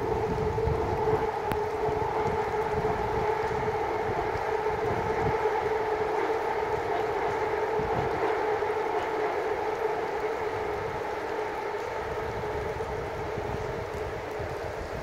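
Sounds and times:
steady hum: 0.0s - 15.0s
wind rumbling on microphone: 0.0s - 15.0s.

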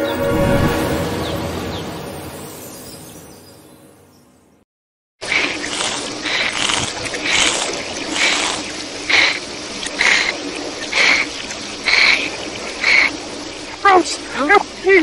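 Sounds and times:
water hissing reversed: 5.2s - 13.8s.

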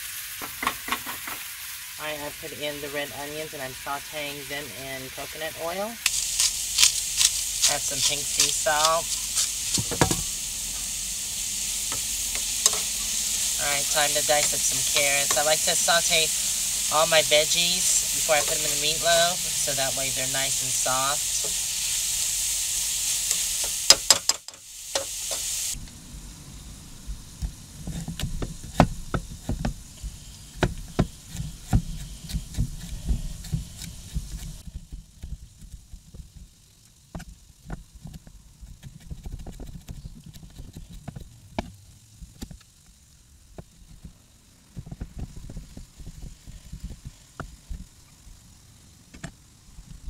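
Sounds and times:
oil sizzling in a frying pan: 0.0s - 31.9s.

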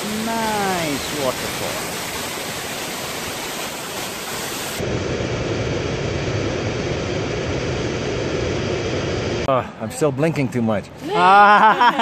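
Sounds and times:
waterfall rushing: 0.0s - 4.8s
low-pitched rushing noise: 4.6s - 9.5s.

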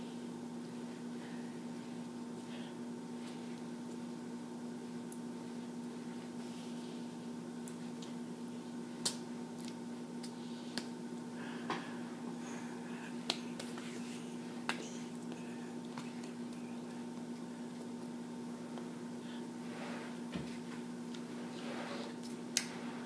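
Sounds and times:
electrical hum: 0.0s - 23.0s
hands slapping together: 13.2s - 14.0s, 14.6s - 16.6s.

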